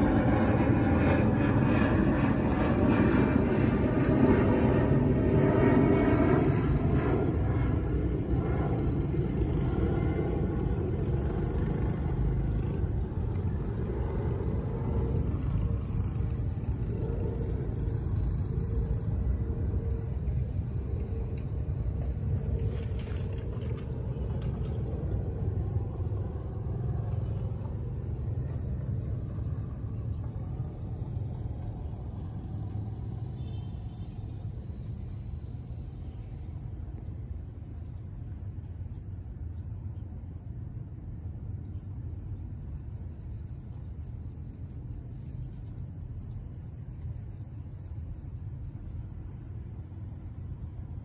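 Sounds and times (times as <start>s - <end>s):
low rumble: 0.0s - 38.8s.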